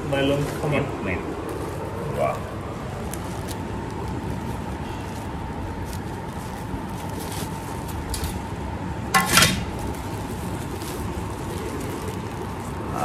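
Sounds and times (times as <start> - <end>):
plastic bag rustling: 0.0 - 13.0
steel plates handled: 9.2 - 9.7.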